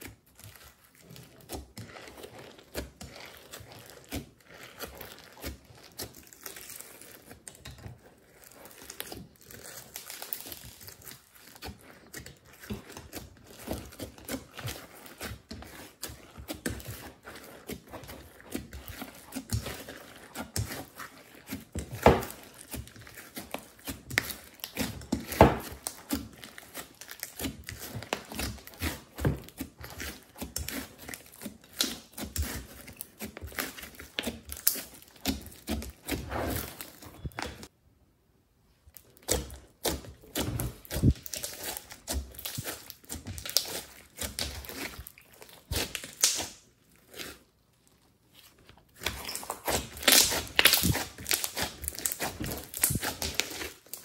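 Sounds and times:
hands squishing slime: 0:00.0 - 0:37.7, 0:38.8 - 0:54.0
slime popping: 0:39.2 - 0:47.4, 0:49.0 - 0:54.0.

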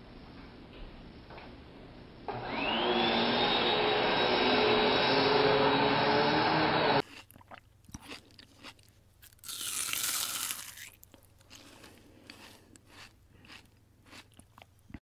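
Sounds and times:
upright vacuum cleaner on carpet: 0:02.3 - 0:07.0
cat licking and chewing: 0:11.4 - 0:15.0.

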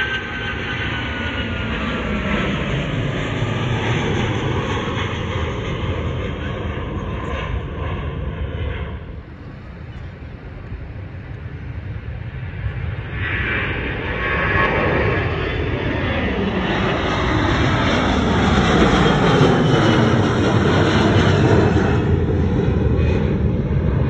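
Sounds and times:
jet engines passing: 0:00.0 - 0:24.0.

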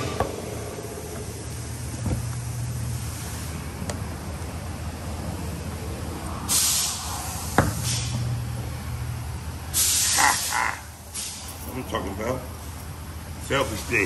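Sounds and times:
steady low hum: 0:00.0 - 0:14.0
loud bursts of hiss: 0:06.4 - 0:08.3, 0:09.7 - 0:11.6.

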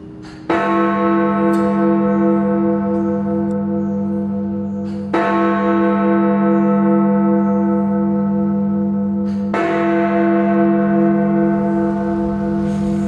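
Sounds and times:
large bell ringing: 0:00.0 - 0:13.0
hammer striking bell: 0:01.3 - 0:02.3, 0:09.1 - 0:13.0.

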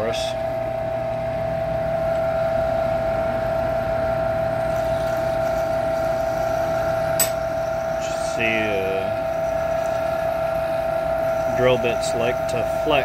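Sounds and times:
lathe motor whine: 0:00.0 - 0:13.0
drill boring into metal: 0:07.1 - 0:13.0.

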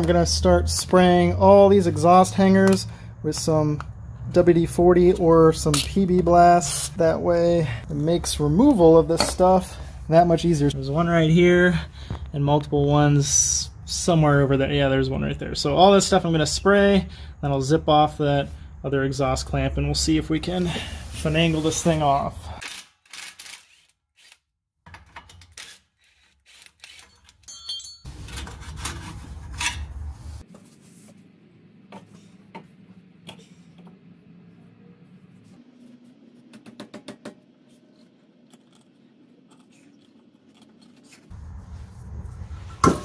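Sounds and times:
metallic clinks of hand tools: 0:27.0 - 0:28.1.

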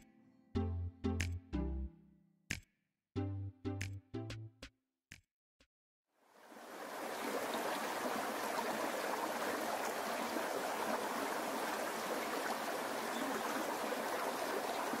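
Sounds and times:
stream splashing over rocks: 0:06.4 - 0:15.0.

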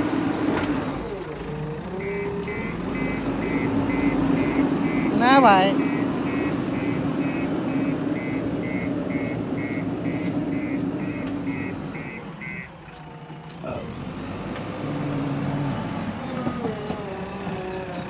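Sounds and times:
diesel engine running: 0:00.0 - 0:18.0
reversing alarm beeping: 0:01.6 - 0:13.3.

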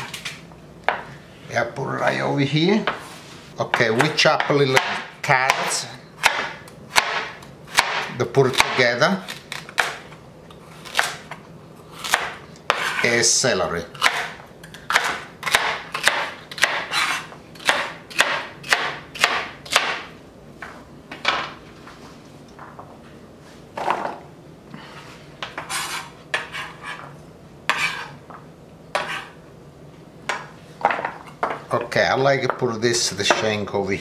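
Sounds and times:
knife chopping on cutting board: 0:03.7 - 0:08.9, 0:12.0 - 0:13.0, 0:13.9 - 0:20.1, 0:29.0 - 0:29.4.

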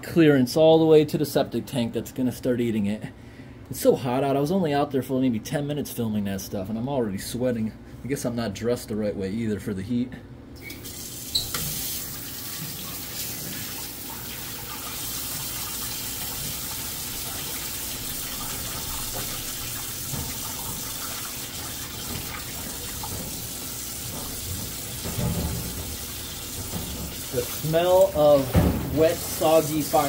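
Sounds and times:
faucet water running into sink: 0:10.6 - 0:30.0.

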